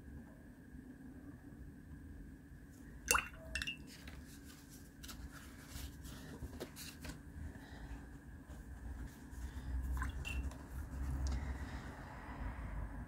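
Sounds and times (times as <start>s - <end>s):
paintbrush clinking against mug: 3.1s - 3.9s, 10.0s - 10.5s.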